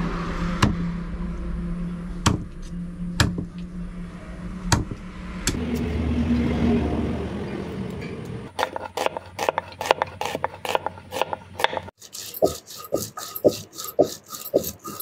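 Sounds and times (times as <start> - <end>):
rhythmic scraping strokes: 8.5 - 15.0.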